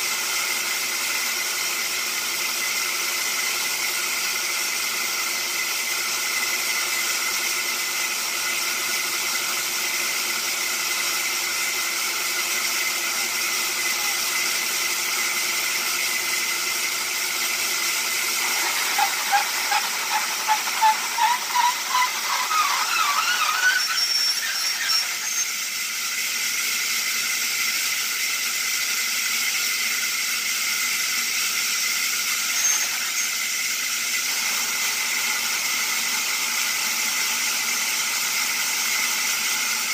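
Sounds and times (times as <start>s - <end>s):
band sawmill hissing: 0.0s - 39.9s
rhythmic squeal: 18.1s - 25.8s, 32.5s - 33.6s.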